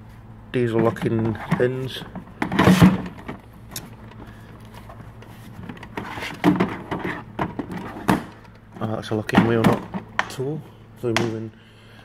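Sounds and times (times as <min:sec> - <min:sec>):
knocks and rattling: 0:00.7 - 0:04.3, 0:05.2 - 0:10.4
plastic cases scraping and clattering: 0:00.7 - 0:10.3.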